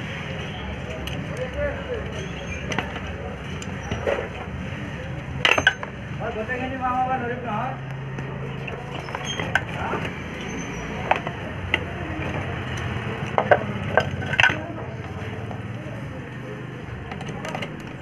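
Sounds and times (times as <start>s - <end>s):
small metallic clinks: 5.4s - 5.9s.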